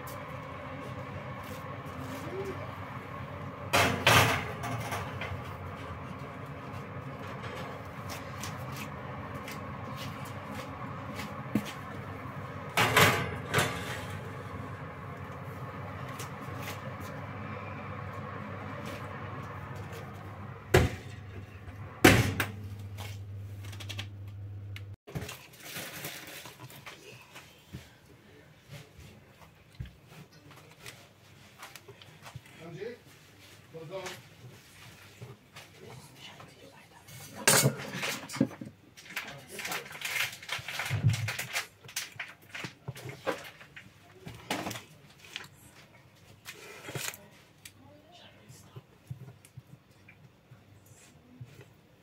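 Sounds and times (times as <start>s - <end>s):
steady low hum: 0.0s - 25.0s
oven door banging shut: 12.8s - 14.3s, 22.0s - 22.6s
oven door knock: 22.0s - 22.6s.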